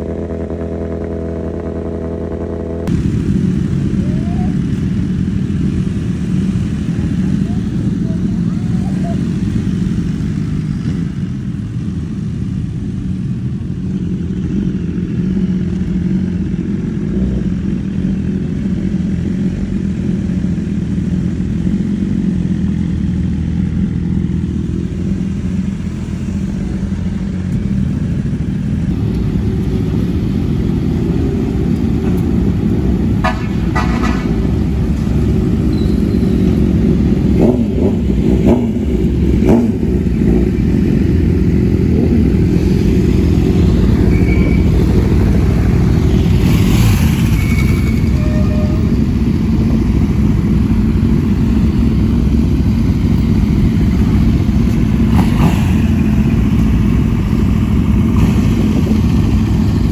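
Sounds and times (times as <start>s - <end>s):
motorcycle engines running: 0.0s - 59.9s
horn tooting: 47.2s - 49.0s.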